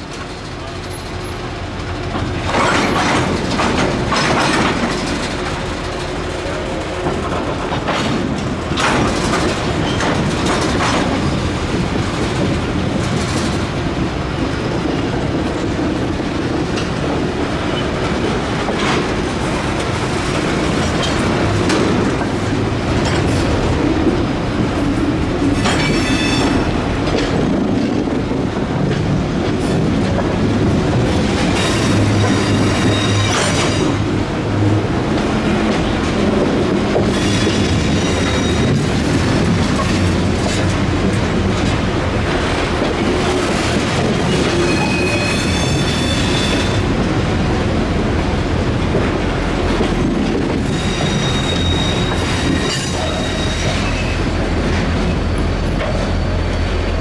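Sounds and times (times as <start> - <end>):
steel wheels rumbling on rail: 0.0 - 57.0
wheels clacking over rail joints: 0.0 - 57.0
high wheel squeal: 25.8 - 26.7, 31.6 - 33.9, 37.1 - 38.8, 44.2 - 46.8, 50.6 - 54.3.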